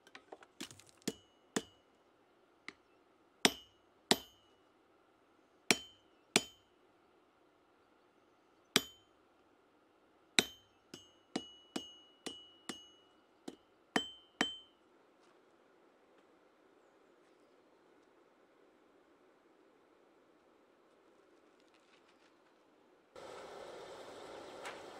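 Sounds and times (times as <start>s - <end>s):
hammer striking steel on anvil: 1.0s - 1.8s, 3.5s - 4.5s, 5.7s - 6.6s, 8.8s - 9.1s, 10.4s - 14.8s.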